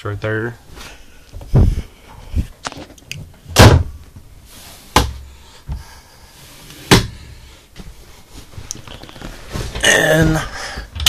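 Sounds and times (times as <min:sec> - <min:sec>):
cabinet doors knocking shut: 0:03.6 - 0:04.0.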